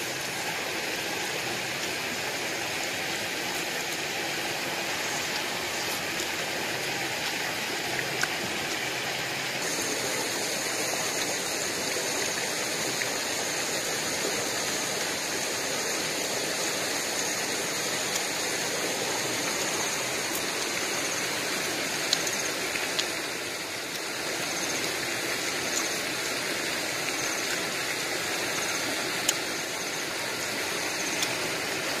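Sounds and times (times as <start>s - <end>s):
stream water over rocks: 0.0s - 32.0s.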